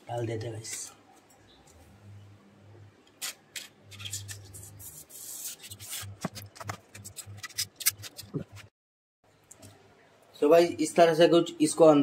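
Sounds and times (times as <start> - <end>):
syringe tip scraping foam plate: 3.2 - 8.6.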